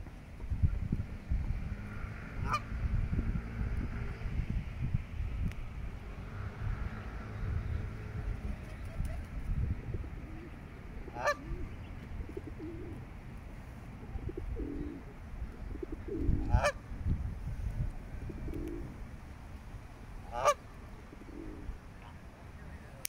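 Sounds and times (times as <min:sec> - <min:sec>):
goose honking: 0:11.0 - 0:11.6, 0:16.4 - 0:16.8, 0:20.2 - 0:20.6.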